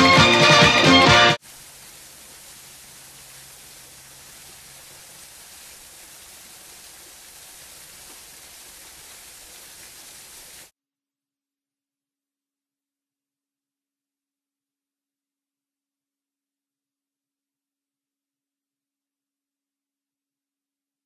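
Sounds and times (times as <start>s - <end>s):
small waterfall pouring into pond: 0.2s - 10.7s.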